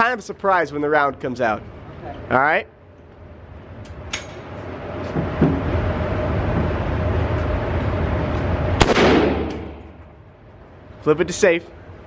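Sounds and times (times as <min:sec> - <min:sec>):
steady rushing noise with hum: 0:00.0 - 0:12.0
rifle shot with echo: 0:08.8 - 0:09.9.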